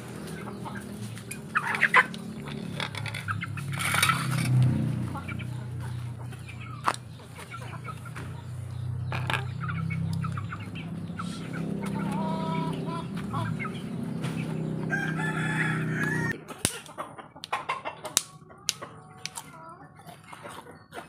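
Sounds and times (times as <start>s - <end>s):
chickens clucking: 0.0s - 21.0s
rooster crowing: 14.8s - 16.4s.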